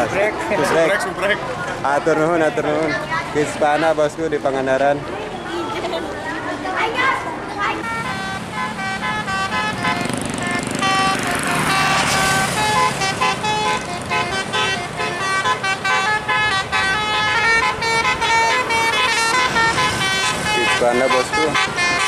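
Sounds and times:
multi-tone bus horn melody: 7.8s - 22.0s.

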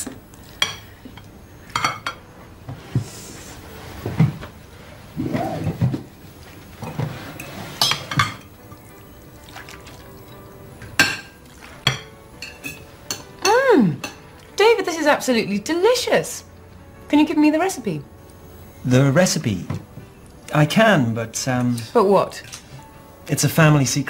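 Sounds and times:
light background music: 0.0s - 24.0s
plates and cutlery clinking: 0.5s - 2.3s, 6.7s - 8.9s, 10.8s - 14.3s
liquid pouring: 8.5s - 11.8s.

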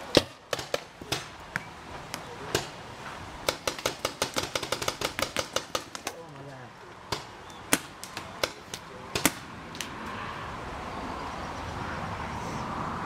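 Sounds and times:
paintball markers firing: 0.1s - 1.4s, 3.4s - 6.2s, 7.1s - 9.9s.

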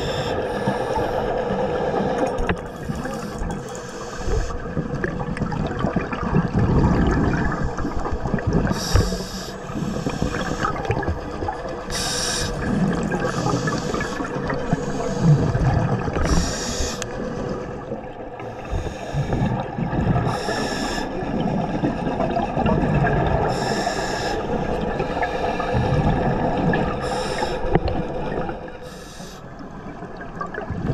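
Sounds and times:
exhaled air bubbling: 0.0s - 30.9s
regulator inhalation hiss: 8.8s - 10.8s, 11.9s - 12.7s, 16.2s - 17.0s, 20.3s - 21.1s, 23.5s - 24.5s, 27.0s - 27.8s, 28.8s - 29.5s.

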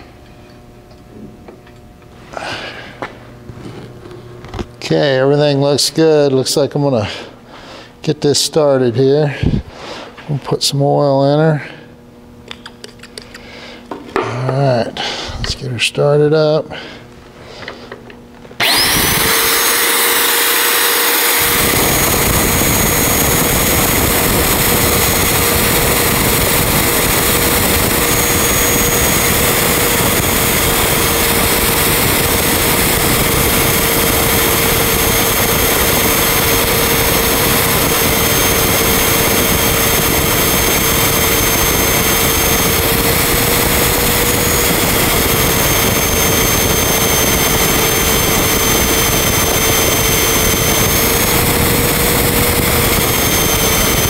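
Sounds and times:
magnetic drill whining: 17.6s - 54.0s
drill grinding through steel: 18.6s - 54.0s.

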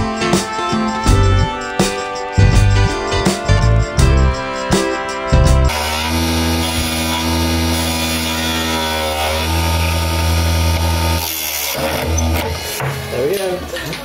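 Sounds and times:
electric motor humming: 5.7s - 13.2s.

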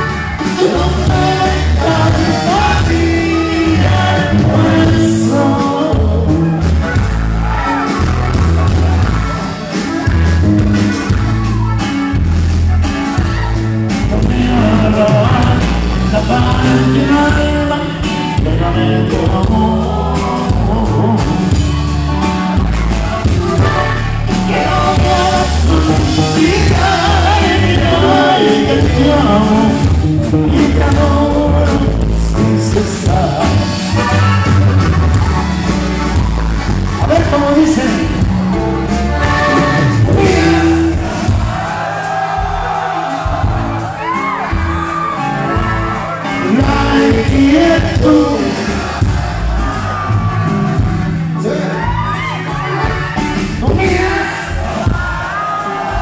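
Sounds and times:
man singing into microphone: 0.0s - 6.9s, 14.0s - 21.7s, 24.3s - 34.6s, 37.0s - 38.4s, 39.1s - 41.2s, 46.2s - 49.0s, 53.5s - 55.1s
live band playing: 0.0s - 56.0s
accordion: 21.5s - 43.6s.

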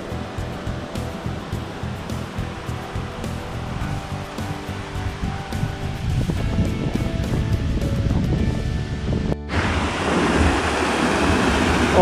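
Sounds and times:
waterfall over rocks: 0.0s - 6.3s, 9.5s - 12.0s
music: 0.0s - 10.7s.

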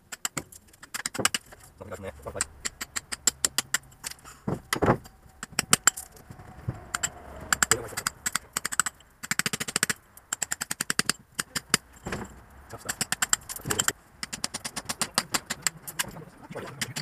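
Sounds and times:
hammer striking a steel chisel: 2.4s - 6.2s.

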